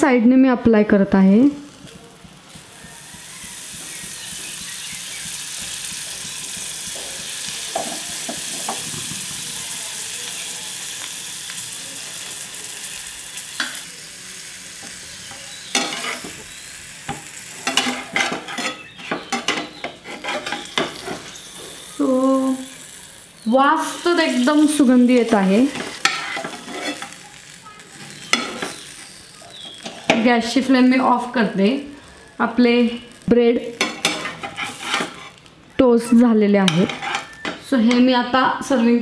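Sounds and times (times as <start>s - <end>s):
butter sizzling in a frying pan: 1.2s - 39.0s
metal spatula scraping a pan: 14.4s - 30.3s, 33.1s - 39.0s.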